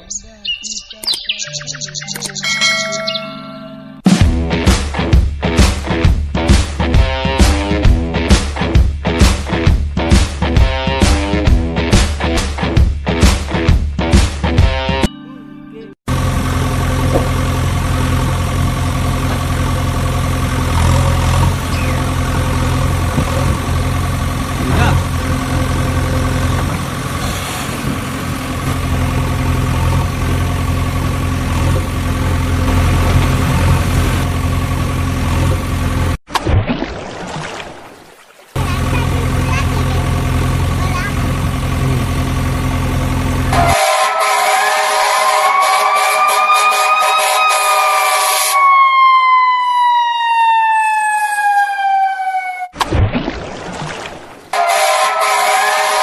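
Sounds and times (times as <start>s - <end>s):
engine idling: 16.1s - 36.2s, 38.7s - 45.2s
toy splashing into water: 36.3s - 38.7s, 52.8s - 54.6s
fire engine siren wail: 43.3s - 52.8s, 54.5s - 56.0s.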